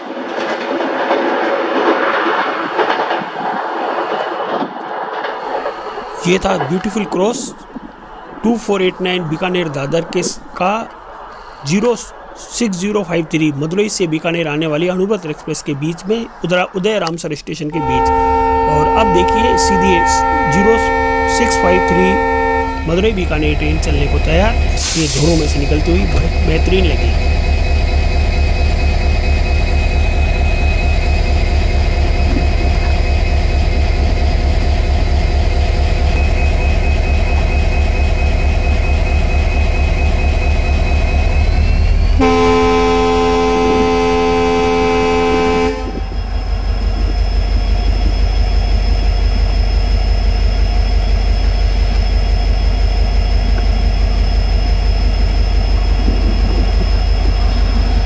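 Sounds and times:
locomotive diesel engine throbbing: 0:05.0 - 0:58.0
locomotive air horn blast: 0:17.7 - 0:23.4, 0:42.2 - 0:46.2.

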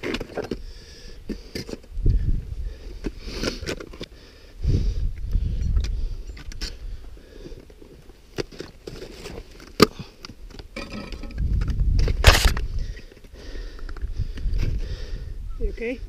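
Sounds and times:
wind rumbling on microphone: 0:01.8 - 0:03.7, 0:04.6 - 0:07.2, 0:11.1 - 0:16.0
gear and boots clicking on rock: 0:05.2 - 0:14.8.

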